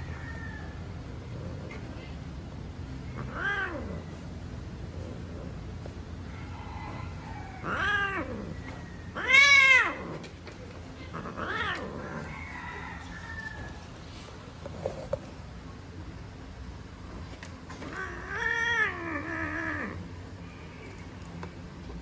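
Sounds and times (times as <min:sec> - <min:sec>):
cat meowing: 0:03.1 - 0:04.1, 0:07.2 - 0:10.2, 0:11.0 - 0:12.3, 0:17.8 - 0:20.0.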